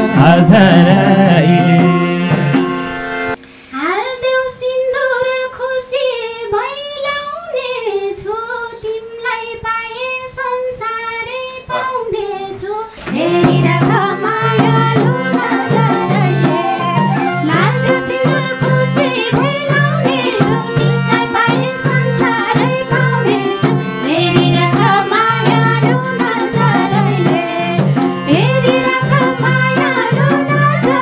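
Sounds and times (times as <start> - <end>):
backing band with harmonium: 0.0 - 3.8, 12.9 - 31.0
woman singing high melody: 3.8 - 31.0
light drum beats: 13.0 - 31.0.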